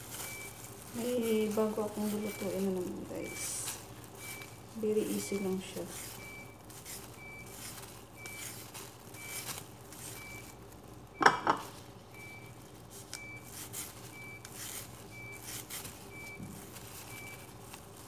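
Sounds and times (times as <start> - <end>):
vegetable peeler scraping carrots: 13.4 - 16.1.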